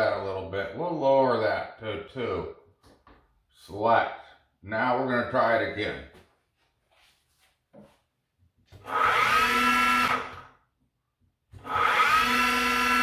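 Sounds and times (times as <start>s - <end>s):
motor whine spinning up: 8.8s - 10.5s, 11.6s - 13.0s.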